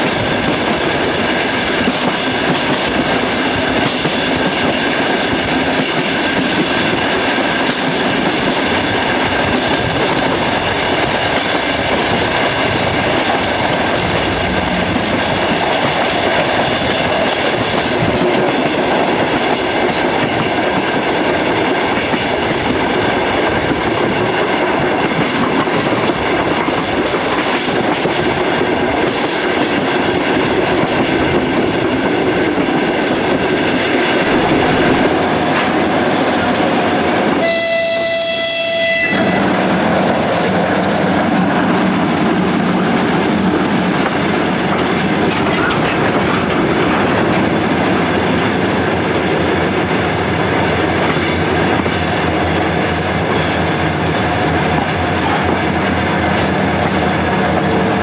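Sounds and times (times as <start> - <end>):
wind rush: 0.0 - 37.5
freight train passing: 0.0 - 58.0
train wheels rolling on rails: 0.0 - 58.0.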